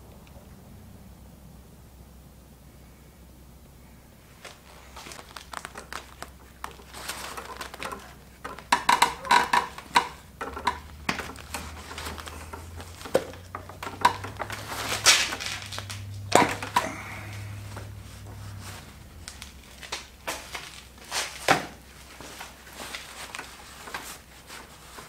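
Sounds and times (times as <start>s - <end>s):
low steady hum: 0.0s - 25.0s
paper towel rustling and crinkling: 4.2s - 25.0s
clicks and knocks from handling: 4.5s - 16.9s.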